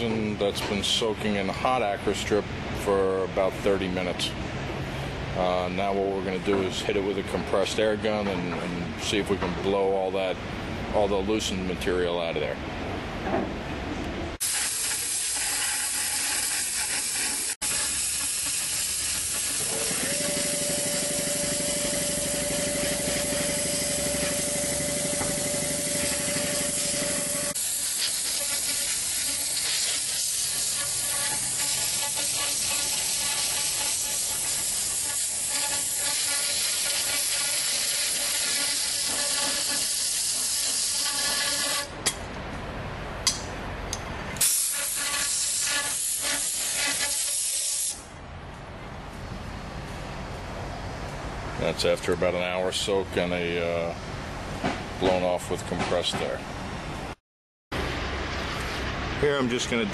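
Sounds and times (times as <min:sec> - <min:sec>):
compressed air gun hissing: 0:14.4 - 0:41.8, 0:44.4 - 0:48.0.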